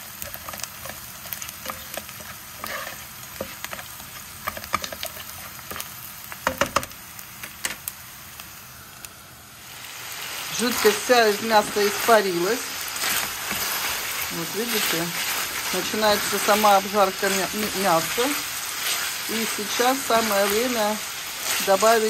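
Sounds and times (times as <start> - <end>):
onion sizzling in oil: 0.0 - 22.0
spatula scraping and tapping pan: 0.2 - 7.8, 13.0 - 13.9.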